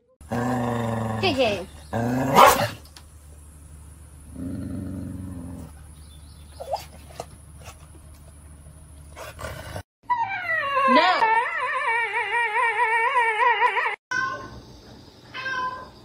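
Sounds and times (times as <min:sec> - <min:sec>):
dog growling: 0:00.2 - 0:02.8, 0:04.2 - 0:05.9
dog whining: 0:10.1 - 0:14.4.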